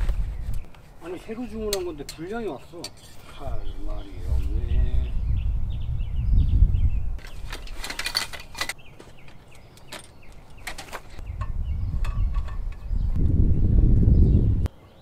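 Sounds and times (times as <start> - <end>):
clicks of camping gear handled: 7.2 - 12.9.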